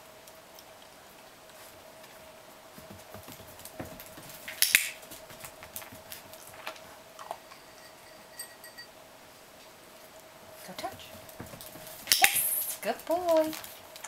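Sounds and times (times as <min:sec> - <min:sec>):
puppy claws on wooden floor: 0:00.5 - 0:07.4, 0:10.6 - 0:14.0.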